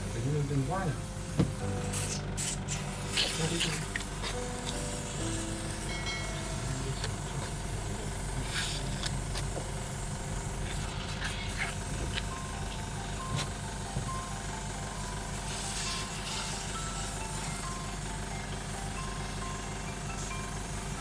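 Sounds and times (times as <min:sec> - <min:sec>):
low mechanical hum: 0:00.0 - 0:21.0
simple tune of high notes: 0:04.4 - 0:08.1, 0:12.2 - 0:21.0.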